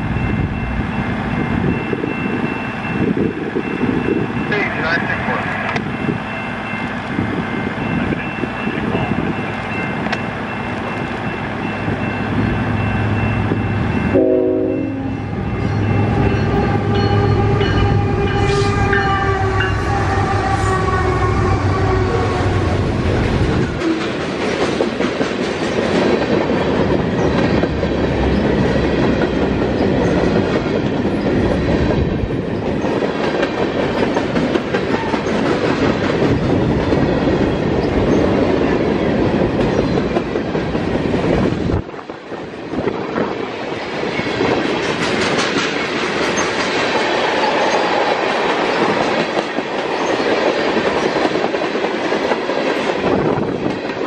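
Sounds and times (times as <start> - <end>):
diesel locomotive rumble: 0.0 - 47.1
train wheels clattering on rails: 5.5 - 19.7, 22.8 - 54.0
train horn: 14.1 - 23.0.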